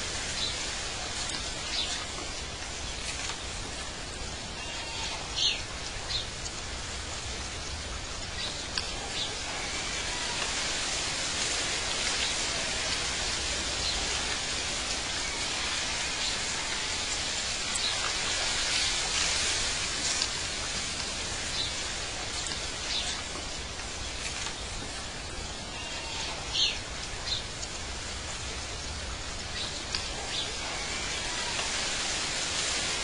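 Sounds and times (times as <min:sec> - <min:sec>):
hissing outdoor ambience: 0:00.0 - 0:33.0.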